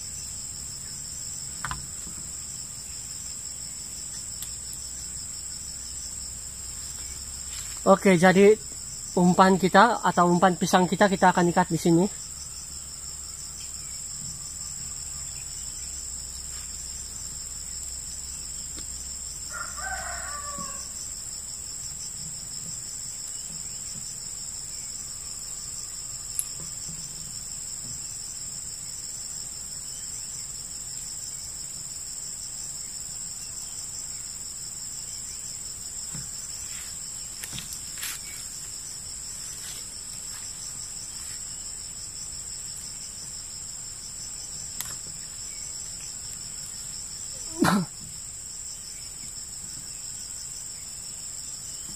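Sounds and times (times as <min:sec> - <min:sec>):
insects droning: 0:00.0 - 0:51.9
rooster crowing: 0:19.4 - 0:21.2.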